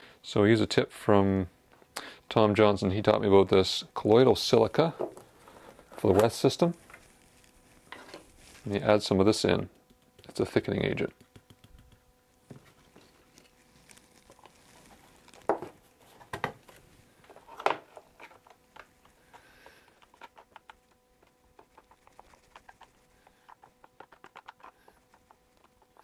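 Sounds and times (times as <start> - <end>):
stir stick tapping in plastic tray: 9.7 - 12.1.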